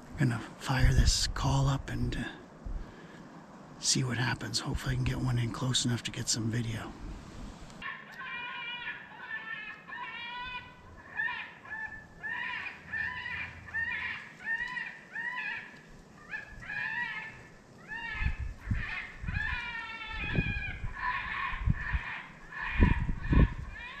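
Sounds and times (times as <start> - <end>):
electronic squealing animal cries: 7.8 - 15.6.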